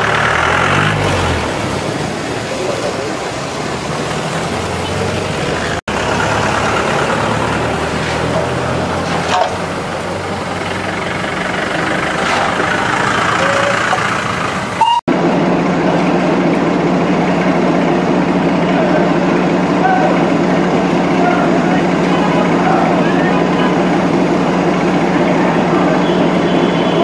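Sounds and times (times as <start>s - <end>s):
street traffic noise: 0.0s - 27.0s
short horn toots: 14.8s - 15.0s.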